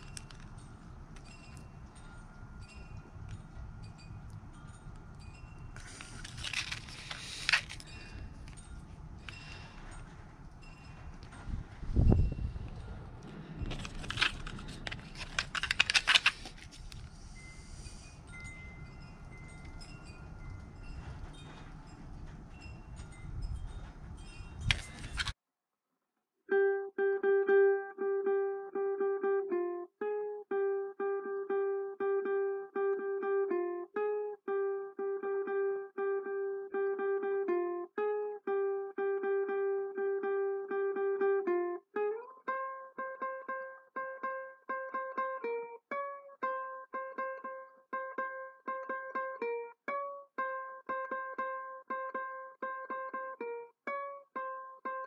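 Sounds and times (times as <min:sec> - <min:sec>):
ukulele playing march tune: 0:00.0 - 0:02.4, 0:26.5 - 0:55.0
handling noise clatter: 0:05.7 - 0:17.2.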